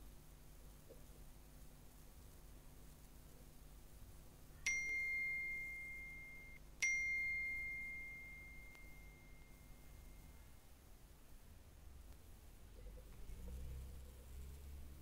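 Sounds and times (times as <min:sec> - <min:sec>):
high ringing dings: 0:04.7 - 0:10.5.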